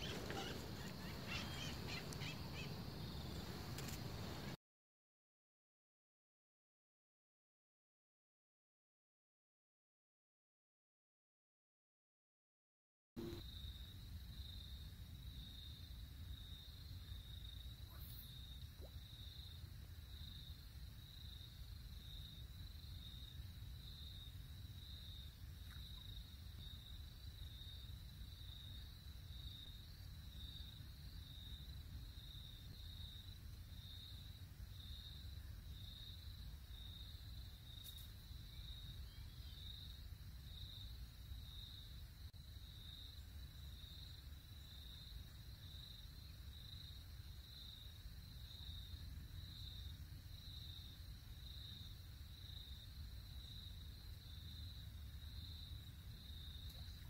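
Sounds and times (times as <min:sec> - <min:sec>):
insect chirping: 0:00.0 - 0:04.6, 0:13.2 - 0:57.0
low outdoor rumble: 0:00.0 - 0:04.6.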